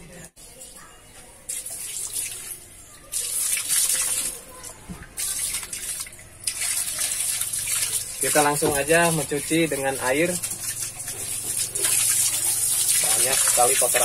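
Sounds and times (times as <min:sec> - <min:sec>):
water from hose splashing on engine: 0:01.4 - 0:14.0.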